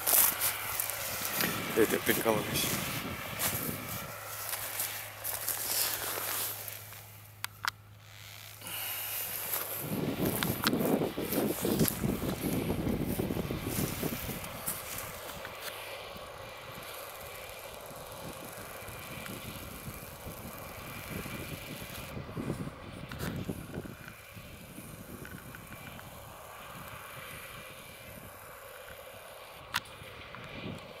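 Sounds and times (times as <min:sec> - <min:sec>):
wind gusts on microphone: 0:00.0 - 0:05.6, 0:08.7 - 0:15.6, 0:18.1 - 0:28.4
distant tractor engine hum: 0:00.0 - 0:31.0.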